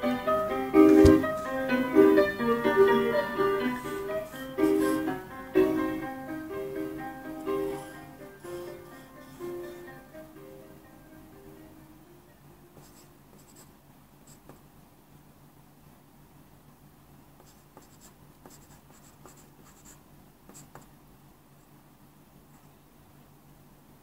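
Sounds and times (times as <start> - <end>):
faint low hum: 0.0 - 24.0
pencil scratching on paper: 3.8 - 5.1, 12.8 - 13.7, 17.4 - 20.9.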